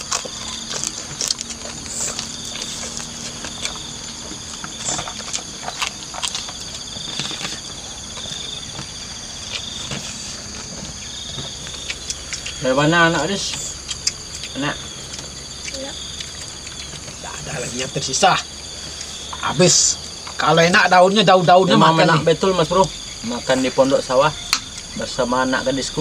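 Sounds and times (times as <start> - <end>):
person chewing and eating: 0.0 - 20.6
insects chirring: 0.0 - 26.0.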